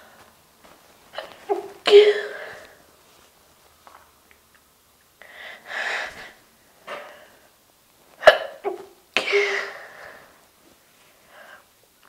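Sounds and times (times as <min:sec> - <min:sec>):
woman breathing in: 0:05.2 - 0:07.5
woman sneezing: 0:08.2 - 0:10.0.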